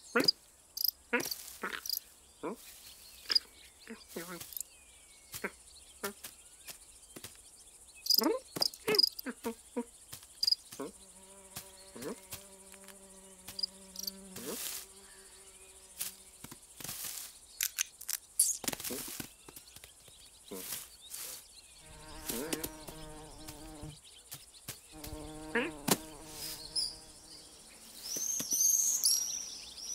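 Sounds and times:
insect-like buzz: 0:00.1 - 0:04.7, 0:08.0 - 0:19.8, 0:20.5 - 0:29.9
cartoon squeaks and clicks: 0:17.6 - 0:18.7.

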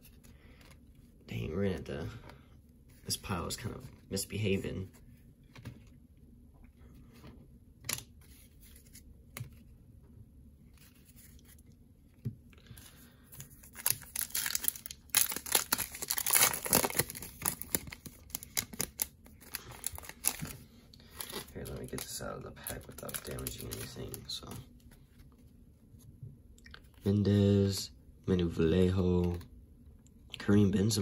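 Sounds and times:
foil wrapper tearing and crinkling: 0:13.7 - 0:20.6.

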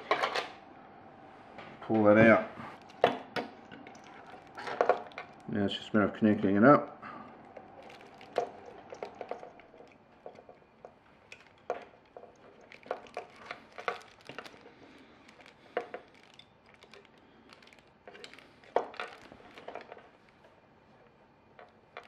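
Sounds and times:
plastic clicks and rustles: 0:02.8 - 0:05.6, 0:07.4 - 0:20.6, 0:21.5 - 0:22.0.

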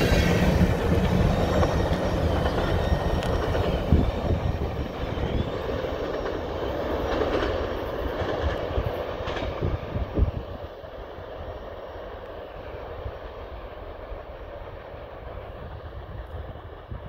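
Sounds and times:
wheels clacking over rail joints: 0:00.0 - 0:09.8
train wheels rumbling on rails: 0:00.0 - 0:17.0.

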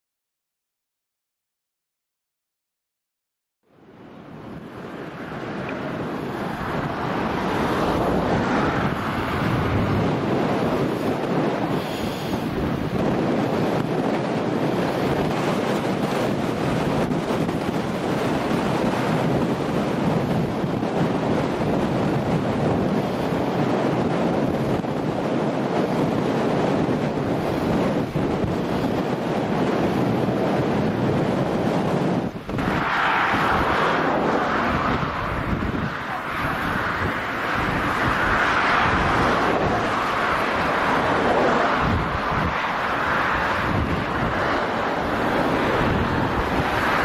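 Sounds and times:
strong wind on microphone: 0:03.8 - 0:47.0.

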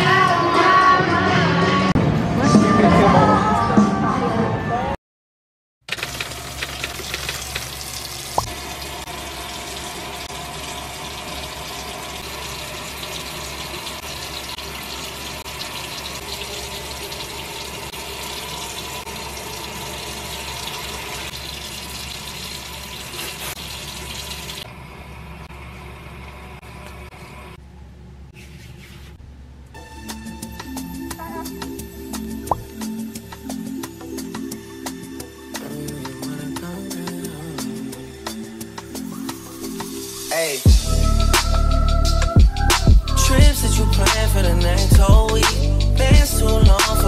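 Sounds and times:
water running from sink tap: 0:05.9 - 0:24.7.

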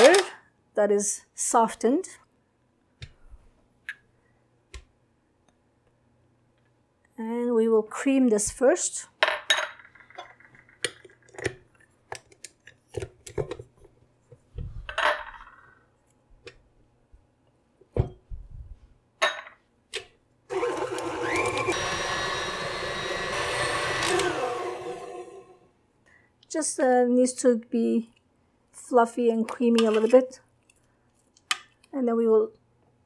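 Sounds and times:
stand mixer motor whine: 0:20.5 - 0:25.6.

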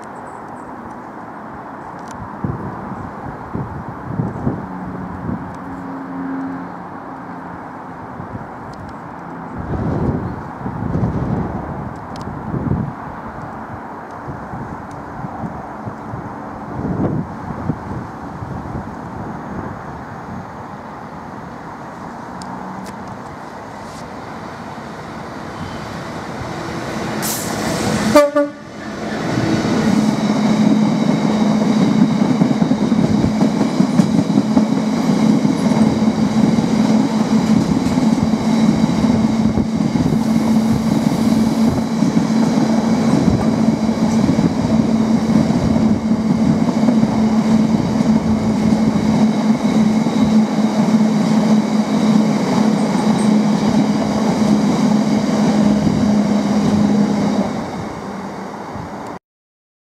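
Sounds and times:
freight wagons rumbling over rails: 0:22.2 - 0:59.1.

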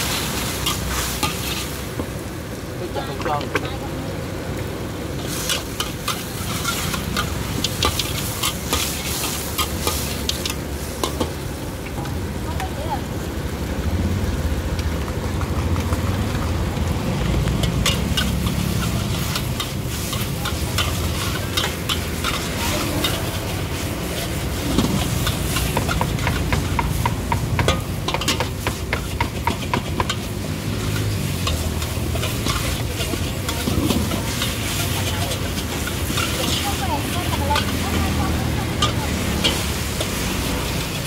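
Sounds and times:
metal ladle scraping a wok: 0:00.0 - 0:02.2, 0:05.1 - 0:11.4, 0:17.5 - 0:41.0
food sizzling: 0:00.0 - 0:41.0.

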